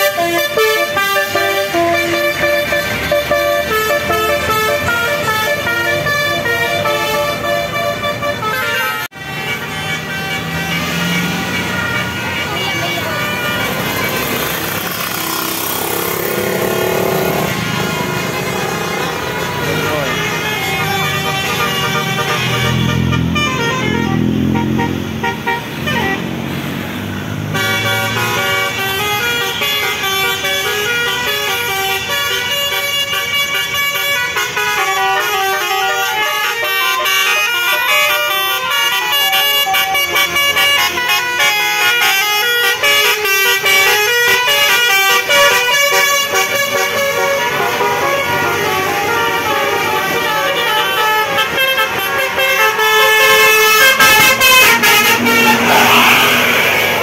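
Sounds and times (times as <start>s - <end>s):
musical bus horns playing tunes: 0.0s - 57.0s
bus engine rumbling past: 9.2s - 29.5s, 52.0s - 57.0s
people's voices: 12.3s - 16.2s, 18.2s - 22.2s, 54.8s - 57.0s.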